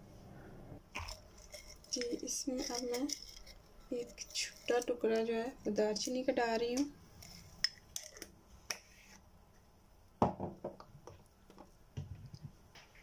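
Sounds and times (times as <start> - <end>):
utensils clicking and knocking: 1.0 - 5.0.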